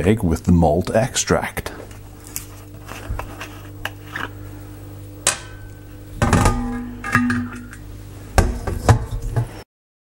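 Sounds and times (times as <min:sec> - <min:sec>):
low hum: 0:01.8 - 0:09.4
metal keg knocking and clattering: 0:06.2 - 0:07.8.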